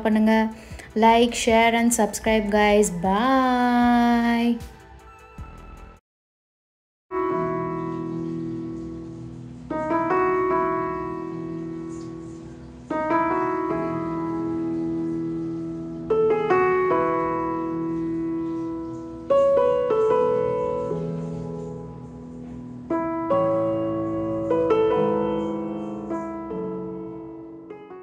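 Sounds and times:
slow piano music: 0:07.1 - 0:28.0.

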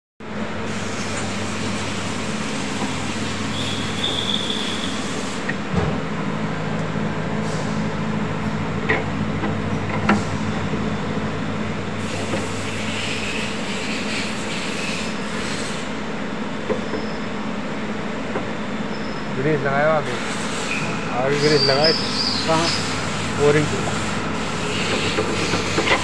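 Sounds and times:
low machine hum: 0:00.2 - 0:26.0.

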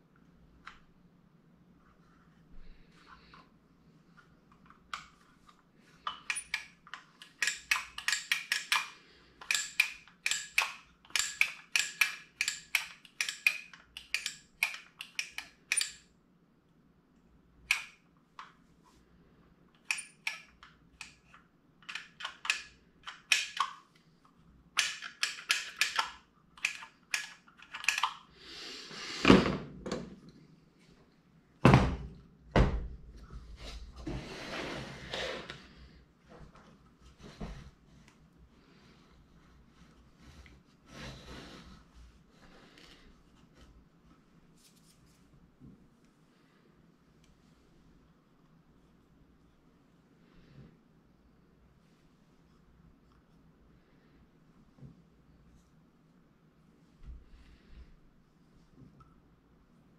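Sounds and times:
screwdriver clicking on metal: 0:06.1 - 0:16.0, 0:24.8 - 0:28.2.

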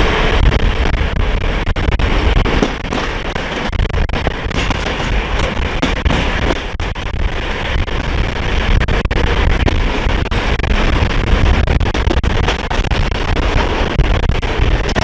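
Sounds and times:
moving train rumble: 0:00.0 - 0:15.0
sharp knocks: 0:02.4 - 0:07.1.

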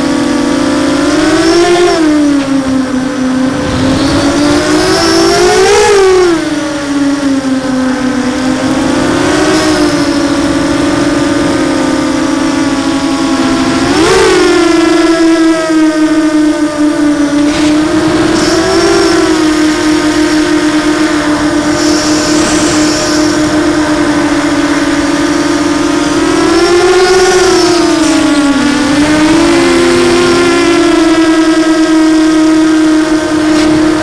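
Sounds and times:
quadcopter motors whining: 0:00.0 - 0:34.0.

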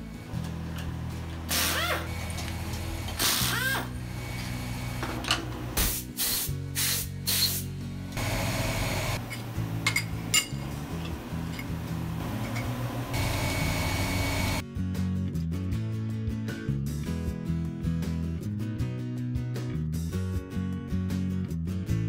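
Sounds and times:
compressed air blow gun hissing: 0:01.5 - 0:02.3, 0:05.8 - 0:09.2
metal parts clinking: 0:09.2 - 0:12.8.

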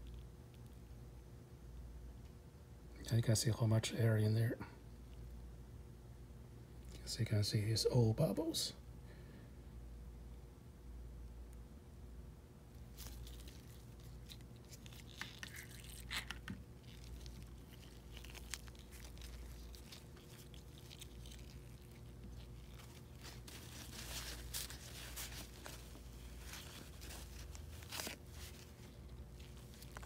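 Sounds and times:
paper towel crumpling and rubbing: 0:12.9 - 0:30.0.

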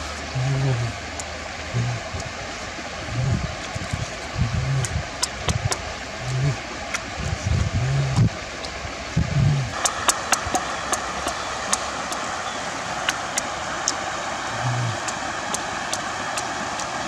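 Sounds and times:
rushing background noise: 0:00.0 - 0:17.0
man humming: 0:00.3 - 0:01.0, 0:01.7 - 0:02.2, 0:04.4 - 0:05.0, 0:06.2 - 0:06.6, 0:07.8 - 0:08.3, 0:14.5 - 0:15.2
man chewing with mouth clicks: 0:00.4 - 0:02.3, 0:03.1 - 0:08.3.

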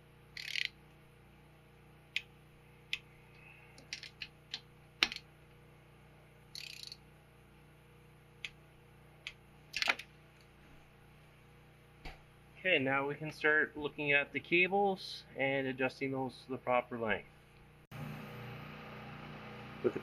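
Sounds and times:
sharp metal clicks: 0:00.3 - 0:00.8, 0:06.5 - 0:07.0
torque wrench ratcheting: 0:00.4 - 0:00.8, 0:06.5 - 0:07.0.

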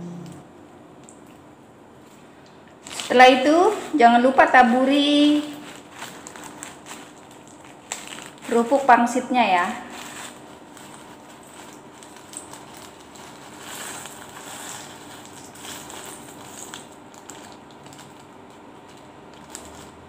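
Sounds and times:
light clicks of crisps: 0:02.0 - 0:03.2, 0:05.3 - 0:08.9, 0:09.9 - 0:20.0
plastic bag rustling: 0:02.8 - 0:20.0.

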